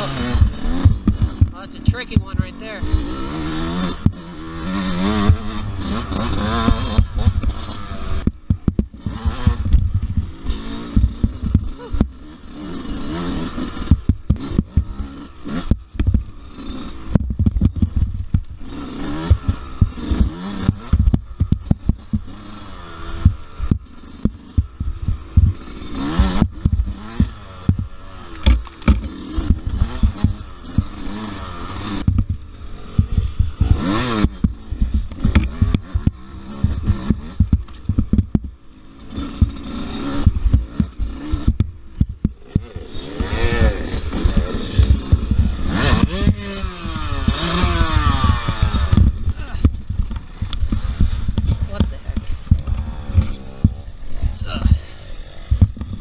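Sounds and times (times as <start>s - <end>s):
dirt bike engine revving: 0.0s - 56.0s
bike knocking and clattering: 6.2s - 10.3s, 39.3s - 43.6s, 44.2s - 54.9s.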